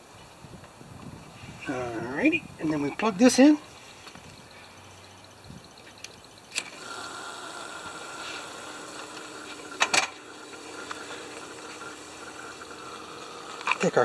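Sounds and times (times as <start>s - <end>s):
water running with hiss: 6.7s - 14.0s
hose coupling clicks: 8.9s - 10.2s, 13.5s - 13.9s.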